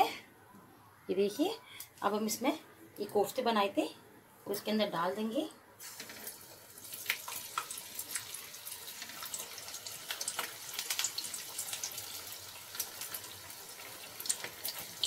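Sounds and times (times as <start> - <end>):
food deep-frying in hot oil: 5.8 - 15.0
oil crackling and popping: 5.8 - 15.0.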